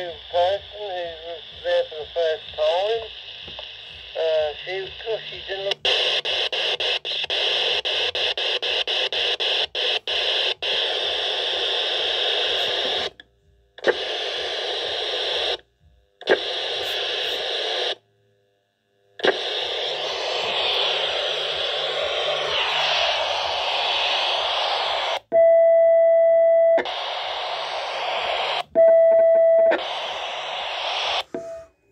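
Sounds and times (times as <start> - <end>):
radio static hissing: 0.0 - 13.2, 13.8 - 15.6, 16.2 - 18.0, 19.2 - 25.3, 26.8 - 28.7, 29.6 - 31.9
sharp crack of radio: 13.8 - 15.6, 19.2 - 25.2, 29.7 - 31.6.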